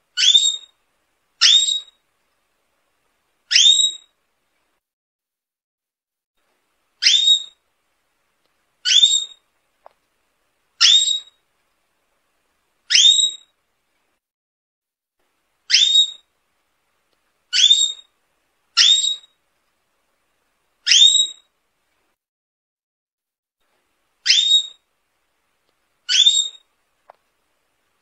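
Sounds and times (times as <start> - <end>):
canary whistling calls: 0.2 - 0.7, 1.4 - 2.0, 3.5 - 4.1, 7.0 - 7.6, 8.8 - 9.4, 10.8 - 11.4, 12.9 - 13.5, 15.7 - 16.3, 17.5 - 18.1, 18.8 - 19.4, 20.8 - 21.5, 24.2 - 24.8, 26.1 - 26.7.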